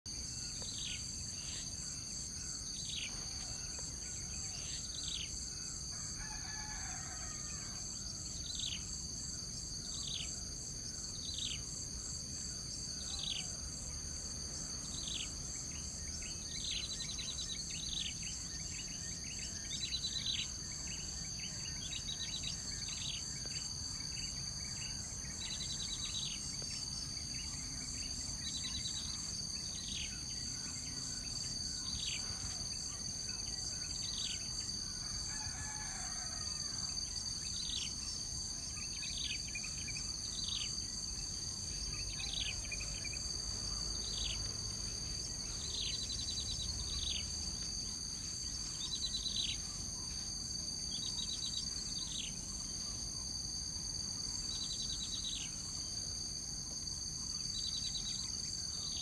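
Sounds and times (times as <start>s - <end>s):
insects droning: 0.1s - 59.0s
rooster crowing: 5.9s - 8.3s, 34.3s - 37.3s.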